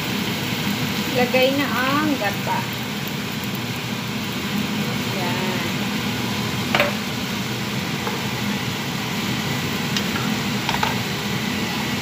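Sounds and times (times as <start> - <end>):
food sizzling in a pan: 0.0 - 12.0
spatula knocking against pan: 6.8 - 7.0.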